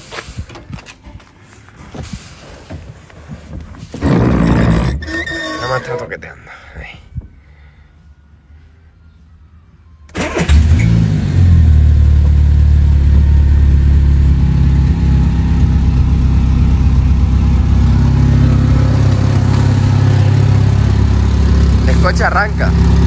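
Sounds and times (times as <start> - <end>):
car engine starting and running: 2.3 - 6.3, 10.0 - 23.0.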